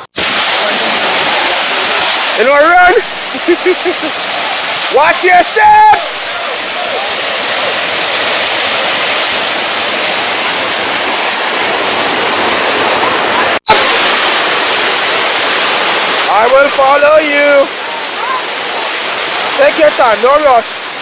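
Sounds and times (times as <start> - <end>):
water cascading down rocks: 0.0 - 21.0.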